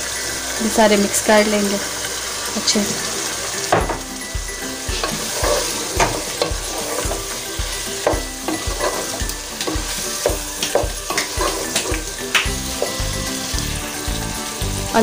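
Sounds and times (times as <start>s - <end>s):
food sizzling: 0.0s - 15.0s
wooden spoon scraping a pot: 4.9s - 12.1s.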